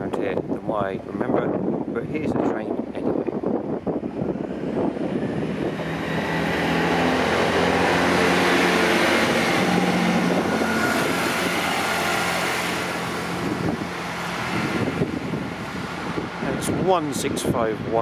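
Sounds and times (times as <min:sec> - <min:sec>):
diesel engine drone: 0:02.7 - 0:18.0
train wheels rushing on rail: 0:04.0 - 0:16.9.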